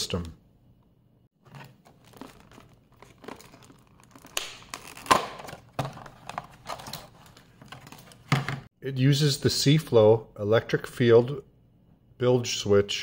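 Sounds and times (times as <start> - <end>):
plastic packaging crinkling: 1.4 - 8.3.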